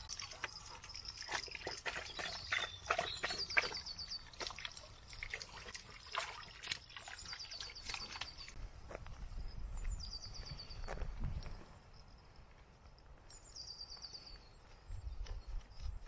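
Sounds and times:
dog lapping water: 0:00.0 - 0:08.5
water trickling: 0:00.0 - 0:08.6.

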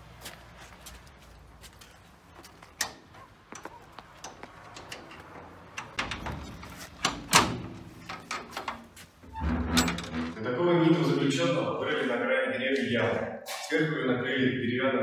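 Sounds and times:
metal door clunking: 0:02.7 - 0:10.5.

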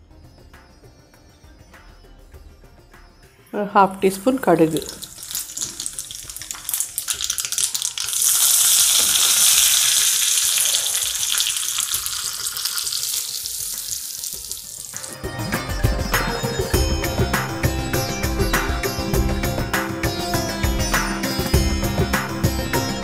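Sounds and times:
instrumental music: 0:00.0 - 0:23.0
leaves sizzling in oil: 0:04.5 - 0:15.2
seeds crackling in hot oil: 0:04.6 - 0:15.2.

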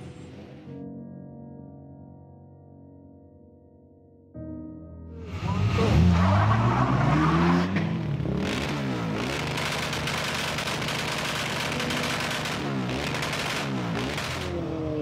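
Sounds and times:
car engine revving and idling: 0:05.3 - 0:15.0.

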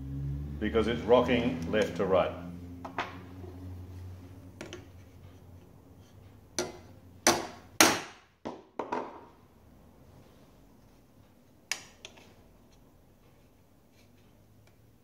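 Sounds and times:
hammer tapping on metal: 0:06.6 - 0:07.9.

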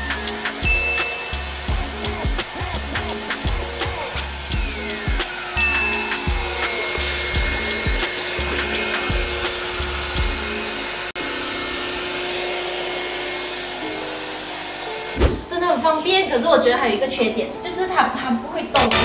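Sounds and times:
music with bass beat: 0:00.0 - 0:10.5
steady held tone: 0:00.0 - 0:10.5.

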